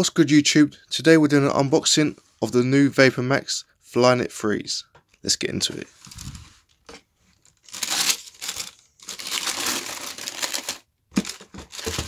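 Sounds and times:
tissue paper crinkling: 0:06.0 - 0:06.6, 0:07.3 - 0:12.0.

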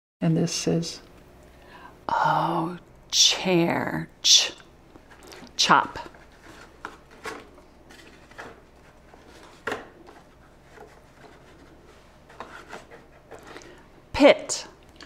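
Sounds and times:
paper cards rustling: 0:05.0 - 0:13.8.

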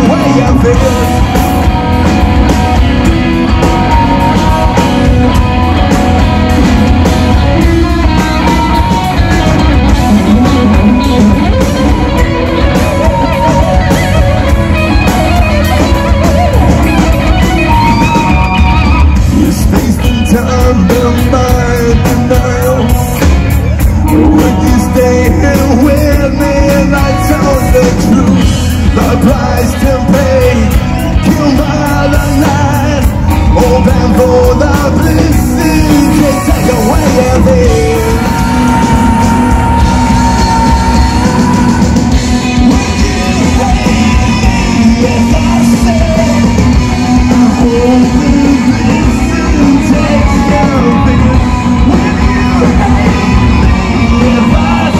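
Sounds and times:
male singer: 0:00.0 - 0:01.8, 0:19.2 - 0:54.9
bass guitar: 0:00.0 - 0:54.9
drum kit: 0:00.0 - 0:54.9
electric guitars: 0:00.0 - 0:54.9.

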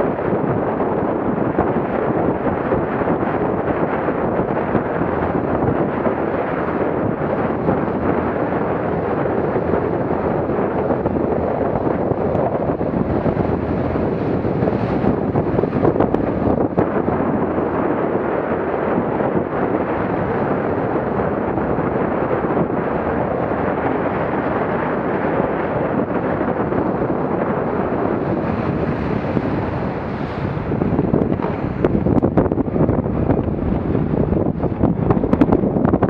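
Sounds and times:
water rushing along boat hull: 0:00.0 - 0:36.0
wind buffeting microphone: 0:00.0 - 0:36.0
water splashes and knocks: 0:28.4 - 0:32.6.

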